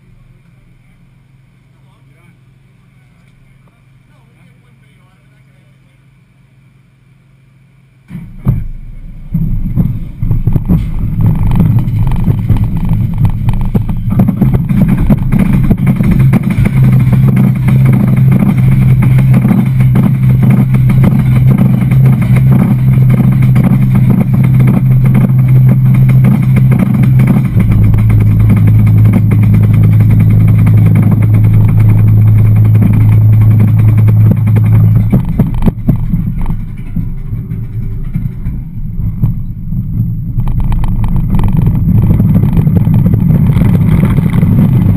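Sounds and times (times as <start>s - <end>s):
low lift drone: 0.0s - 44.9s
chain lift clattering and clicking: 10.8s - 39.2s.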